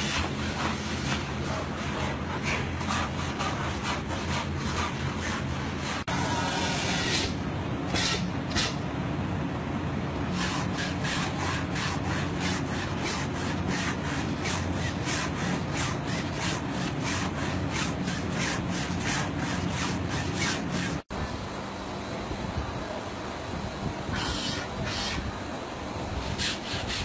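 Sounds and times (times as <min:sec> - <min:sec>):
board scraping denim: 0:00.0 - 0:08.8, 0:10.3 - 0:21.1, 0:24.2 - 0:25.3, 0:26.4 - 0:27.0.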